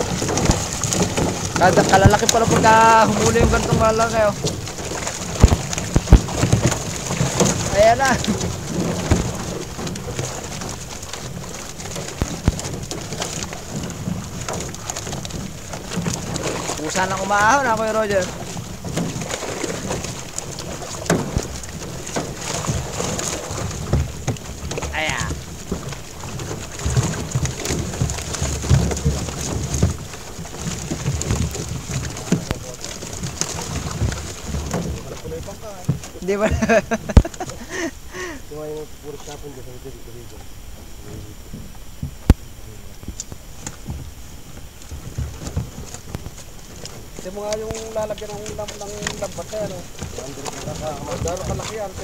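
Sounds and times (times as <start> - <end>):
clicks and dull thumps: 0.0 - 38.4
knocks against the hull: 0.0 - 38.4, 41.0 - 52.0
water splashing in a boat: 0.0 - 52.0.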